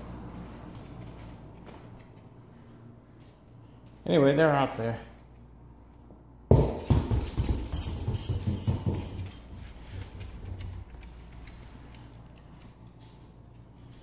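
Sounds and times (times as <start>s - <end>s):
dogs scrambling and scuffling: 6.9s - 14.0s.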